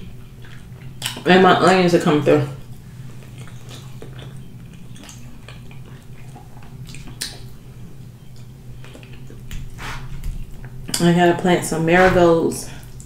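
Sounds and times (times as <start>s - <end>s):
person chewing: 0.0s - 1.3s, 2.6s - 11.0s
steady low hum: 0.0s - 13.0s.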